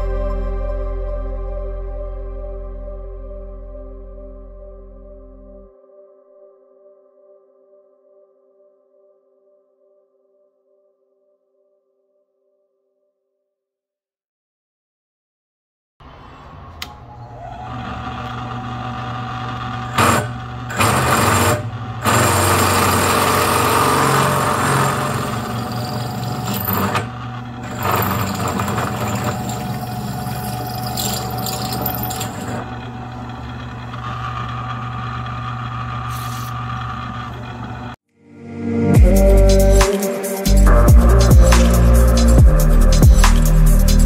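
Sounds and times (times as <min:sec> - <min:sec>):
drill press motor running: 0:16.6 - 0:38.0
hole saw cutting metal: 0:16.6 - 0:38.0.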